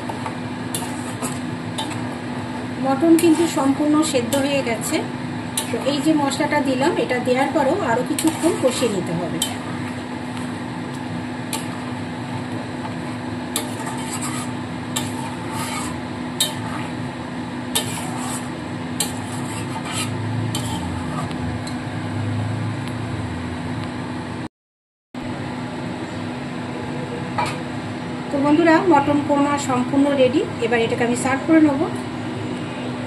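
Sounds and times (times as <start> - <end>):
wooden spatula scraping pan: 0.0 - 10.5, 11.5 - 17.0, 17.7 - 21.4
simmering sizzle: 0.0 - 24.4.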